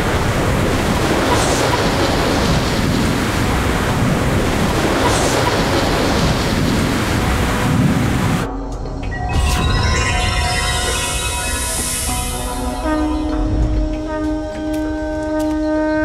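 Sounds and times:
heavy rain: 0:00.0 - 0:08.5.

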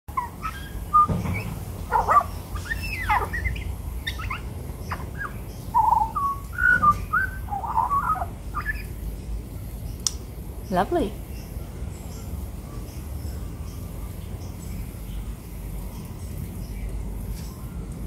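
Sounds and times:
magpie warbling: 0:00.1 - 0:09.0.

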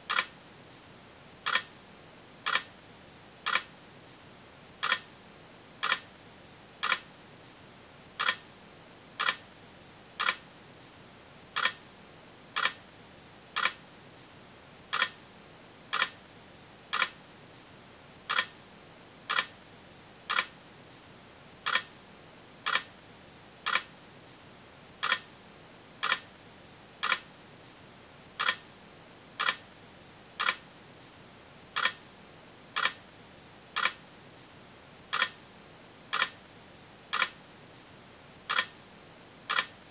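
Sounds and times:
faint steady hiss: 0:00.0 - 0:39.9
sharp clicks: 0:00.1 - 0:00.3, 0:03.5 - 0:03.7, 0:06.8 - 0:07.0, 0:08.2 - 0:08.4, 0:09.2 - 0:09.4, 0:10.2 - 0:10.4, 0:11.6 - 0:11.8, 0:12.6 - 0:12.8, 0:13.6 - 0:13.8, 0:14.9 - 0:15.2, 0:16.0 - 0:16.2, 0:16.9 - 0:17.2, 0:20.3 - 0:20.5, 0:23.7 - 0:23.9, 0:25.0 - 0:25.2, 0:27.0 - 0:27.2, 0:28.4 - 0:28.6, 0:29.4 - 0:29.6, 0:30.4 - 0:30.6, 0:31.8 - 0:32.0, 0:32.8 - 0:33.0, 0:33.8 - 0:34.0, 0:35.1 - 0:35.4, 0:36.1 - 0:36.4, 0:37.1 - 0:37.4, 0:38.5 - 0:38.7.

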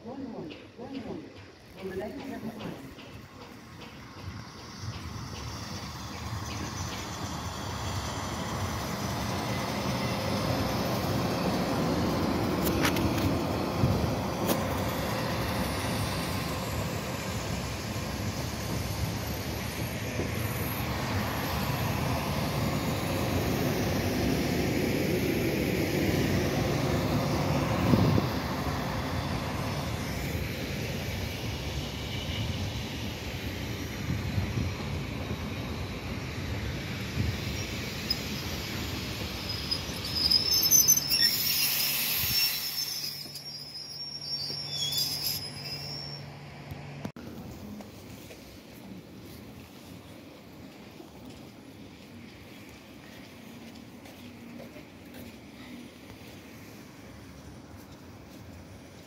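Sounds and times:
electric train rumbling past: 0:00.0 - 0:59.0
high wheel squeal: 0:37.4 - 0:46.5.

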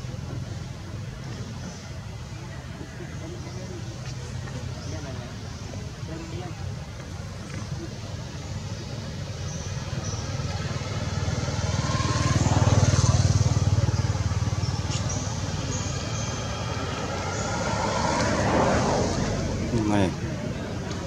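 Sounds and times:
vehicle engine passing: 0:09.6 - 0:21.0.

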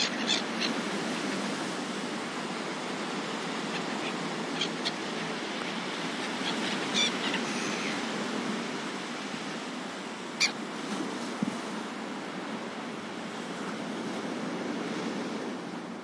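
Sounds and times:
seagulls calling: 0:00.0 - 0:01.3, 0:03.0 - 0:08.2, 0:10.4 - 0:10.6.

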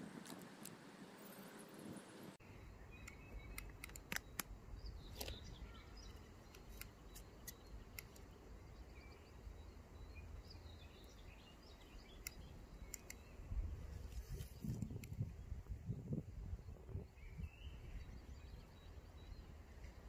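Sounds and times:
faint bird chirps: 0:02.4 - 0:14.8.

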